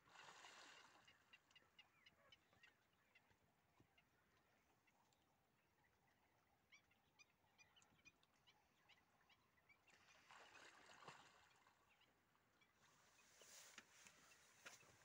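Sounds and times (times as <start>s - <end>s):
distant water splashing: 0.0s - 1.2s.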